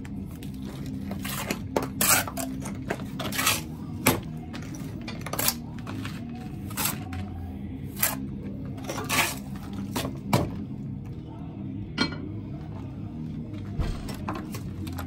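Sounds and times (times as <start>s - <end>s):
trowel scraping on concrete block: 1.1s - 3.7s.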